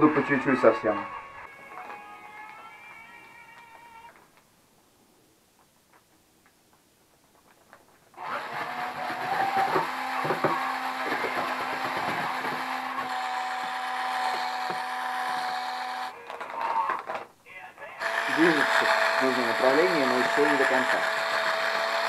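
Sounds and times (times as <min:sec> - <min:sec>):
drill mixer stirring plaster: 0:08.2 - 0:16.1, 0:18.0 - 0:22.0.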